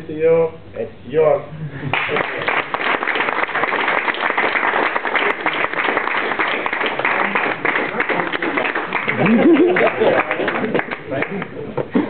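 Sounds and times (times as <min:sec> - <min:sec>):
audience applauding: 0:01.9 - 0:11.6.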